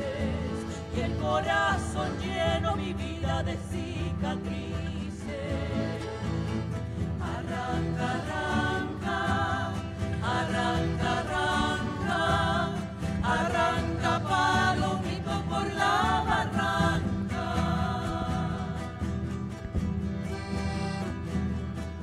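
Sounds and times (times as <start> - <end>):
women singing together: 0.0 - 6.4, 7.2 - 19.2
accordion: 0.0 - 22.0
acoustic guitar: 0.0 - 22.0.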